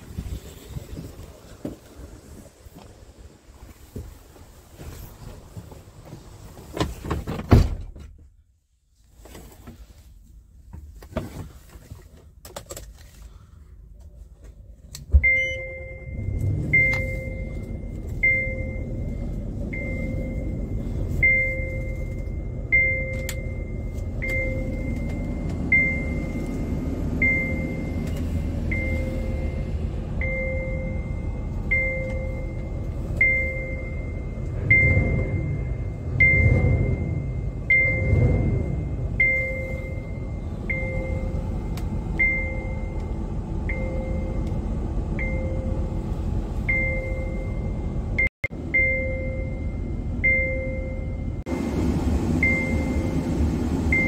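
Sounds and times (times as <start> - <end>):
warning chime beeping: 15.2 - 43.0.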